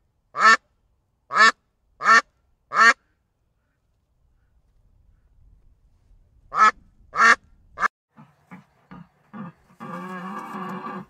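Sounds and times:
duck quacking: 0.4 - 0.6, 1.3 - 3.0, 6.5 - 11.0
low drawn-out animal call: 8.2 - 11.0.

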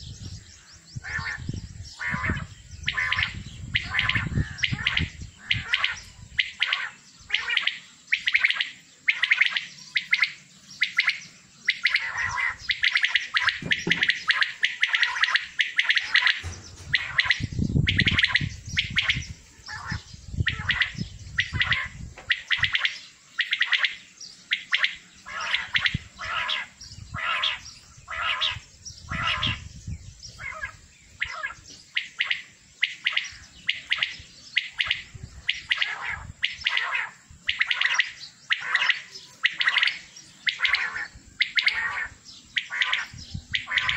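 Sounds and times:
quails calling: 0.0 - 43.9.

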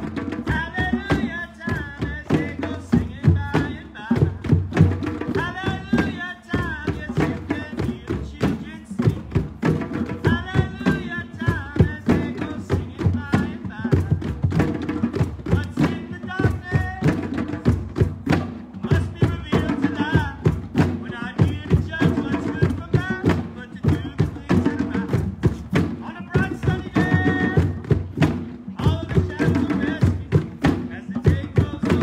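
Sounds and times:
hand drums playing rhythm: 0.0 - 32.0
voices singing or calling: 18.3 - 32.0.

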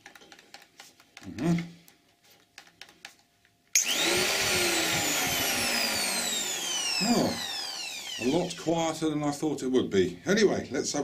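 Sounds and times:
electric hand planer running: 3.8 - 8.7.

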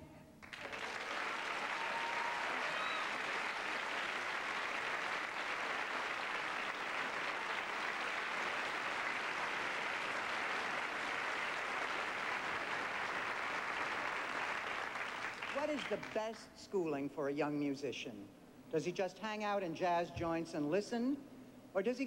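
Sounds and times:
audience applauding: 0.4 - 16.4.

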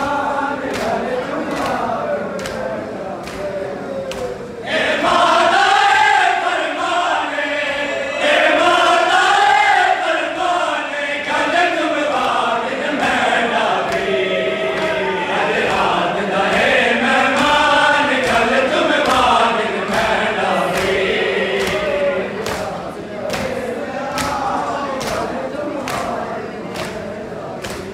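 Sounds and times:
crowd of men chanting: 0.0 - 27.9
chest-beating slaps: 17.4 - 26.2.

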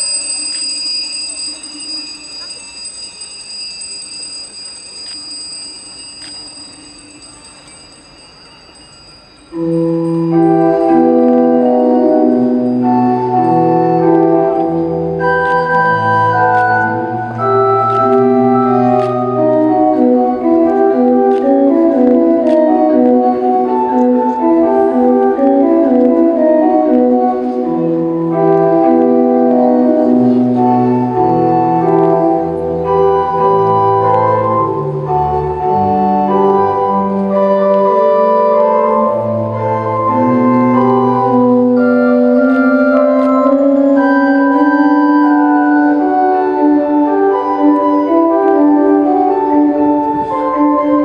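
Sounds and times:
ringing tone: 0.0 - 20.1
organ music: 9.2 - 51.0.

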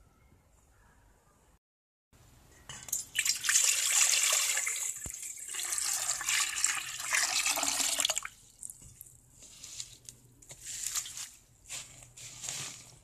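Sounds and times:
water pouring into metal pot: 2.9 - 8.4.

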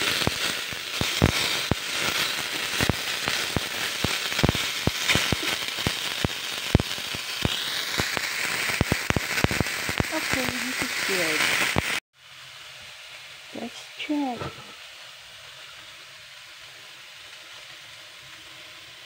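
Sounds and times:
sharp pops and crackles: 0.0 - 12.0
fruit sizzling in frying pan: 0.0 - 19.0.

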